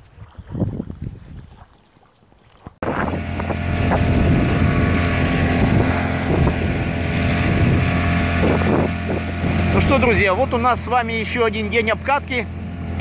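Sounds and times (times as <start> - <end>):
outboard motor running: 2.8 - 13.0.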